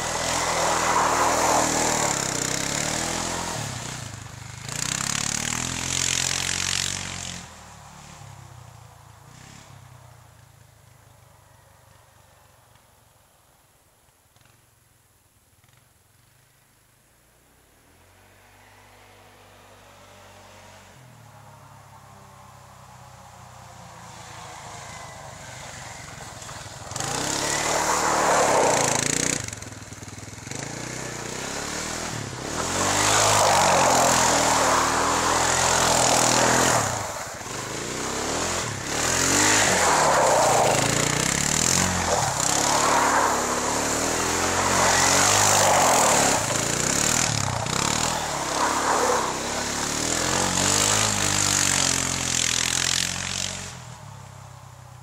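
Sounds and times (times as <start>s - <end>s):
quad engine revving: 0.0s - 8.2s, 24.0s - 54.0s.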